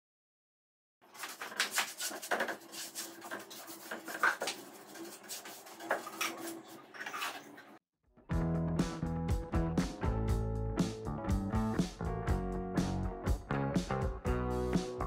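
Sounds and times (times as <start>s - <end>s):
paintbrush scratching on wood: 1.2s - 7.5s.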